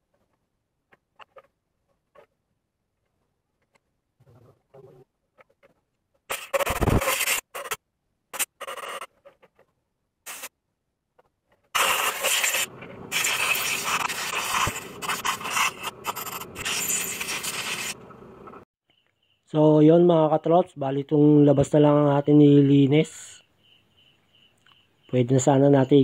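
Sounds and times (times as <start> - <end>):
screwdriver scraping metal: 11.8 - 18.0.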